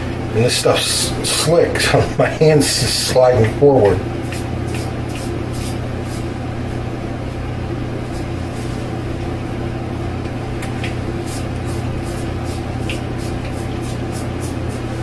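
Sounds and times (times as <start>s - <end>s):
electric fan humming: 0.0s - 15.0s
razor scraping across scalp: 4.2s - 6.3s, 11.2s - 15.0s.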